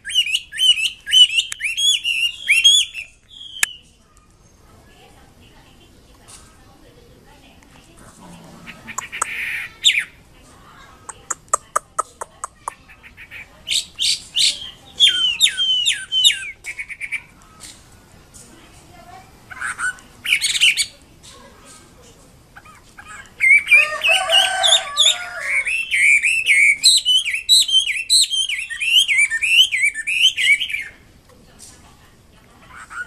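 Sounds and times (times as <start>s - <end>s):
bird singing whistles and trills: 0.0s - 4.6s, 13.7s - 17.3s, 23.4s - 23.9s, 24.8s - 31.0s.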